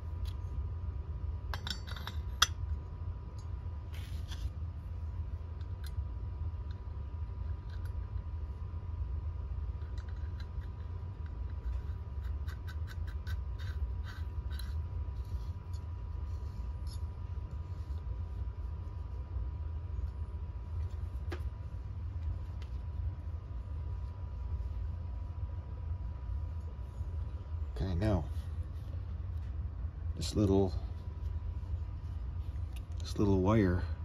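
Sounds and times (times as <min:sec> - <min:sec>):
steady low hum: 0:00.0 - 0:34.0
metal parts clicking and scraping: 0:01.5 - 0:02.6.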